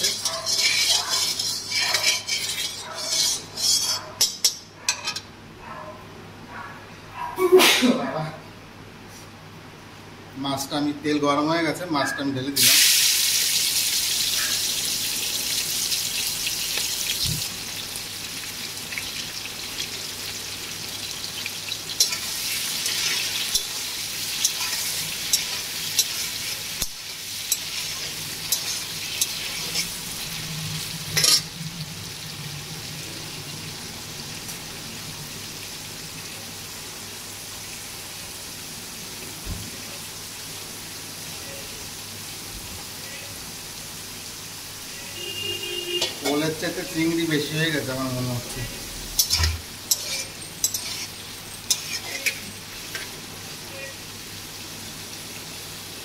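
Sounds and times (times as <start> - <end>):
prawns sizzling in hot oil: 0.0 - 4.6, 12.6 - 56.0.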